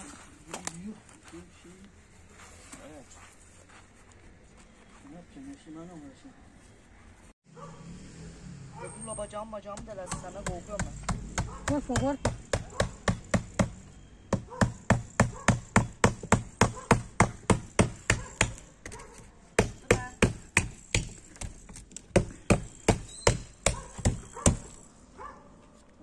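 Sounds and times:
hand tool striking hard ground: 14.4 - 24.8.

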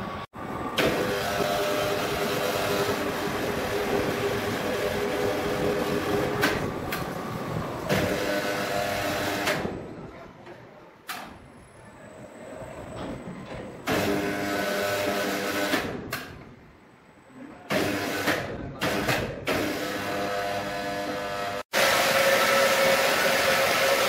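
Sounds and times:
sawmill machinery humming: 0.0 - 9.9, 19.6 - 24.0.

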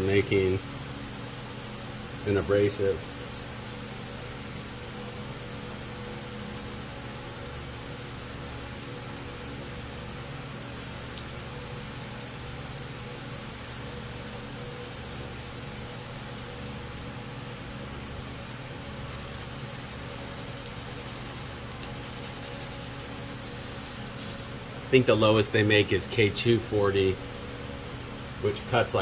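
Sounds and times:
hand sanding rubbing and rasping: 0.0 - 16.6, 19.1 - 24.5.

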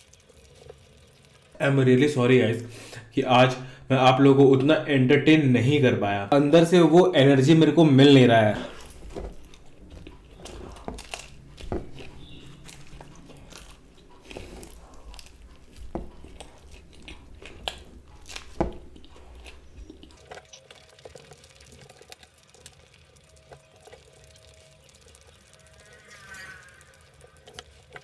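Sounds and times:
person chewing pizza crust: 0.0 - 1.6, 8.5 - 28.0.

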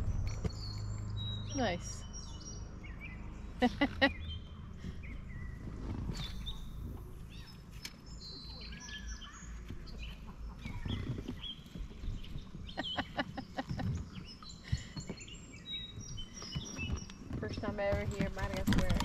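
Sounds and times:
low rumble: 0.0 - 14.4
birds chirping and singing: 0.0 - 19.0.

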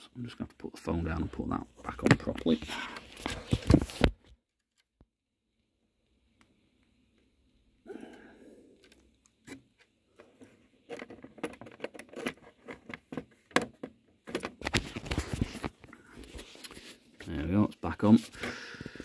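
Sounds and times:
clicks taps and scrapes: 8.8 - 17.3.

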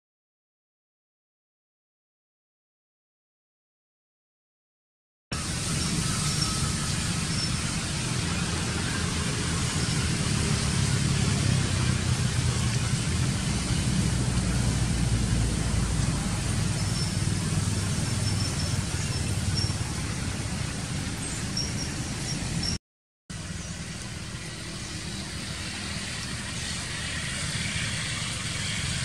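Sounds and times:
low rumble: 5.4 - 22.2
even hiss: 5.4 - 22.8.

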